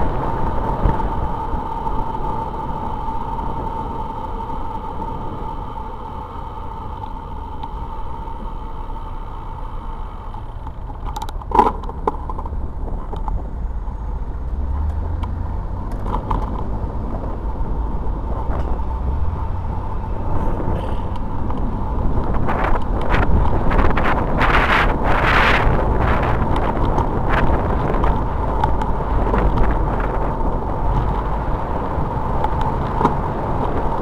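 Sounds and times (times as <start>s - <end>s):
faint steady hum: 0.0s - 14.0s
bicycle road rumble: 0.0s - 34.0s
car traffic: 0.0s - 34.0s
wind noise on microphone: 0.0s - 34.0s.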